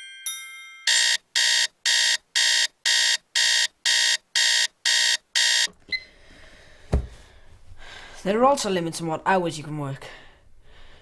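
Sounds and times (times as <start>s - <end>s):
alarm clock beeping: 0.9s - 6.0s.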